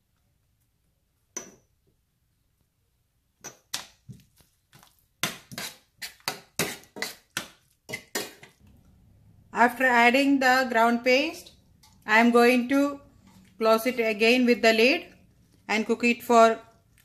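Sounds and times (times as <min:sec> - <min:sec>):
metal spoon scraping frying pan: 0:05.2 - 0:08.6.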